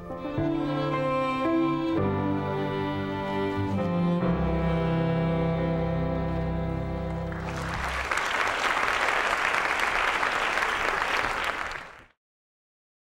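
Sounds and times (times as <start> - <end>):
audience applause: 7.2 - 12.1.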